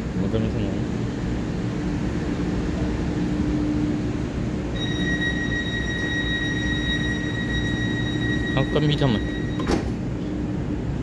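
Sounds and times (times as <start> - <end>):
train equipment humming: 0.0 - 11.0
high warning tone: 4.7 - 9.8.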